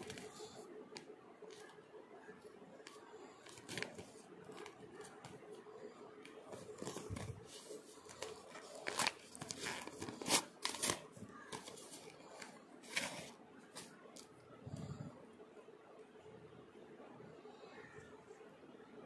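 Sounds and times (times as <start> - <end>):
plastic bag crinkling: 6.5 - 13.3.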